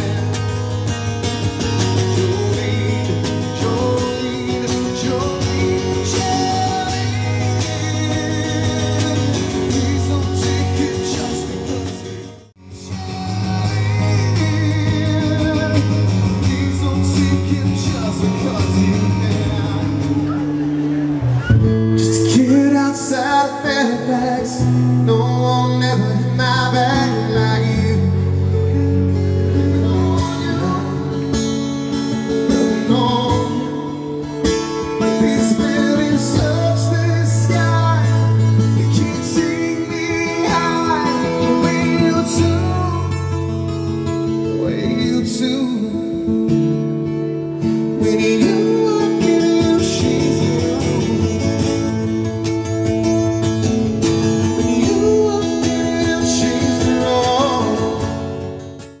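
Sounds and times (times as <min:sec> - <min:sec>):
man singing: 0:00.0 - 0:20.6, 0:21.8 - 0:46.8, 0:47.5 - 0:58.8
cajon beat: 0:00.0 - 0:22.5
strummed acoustic guitar: 0:00.0 - 0:59.0.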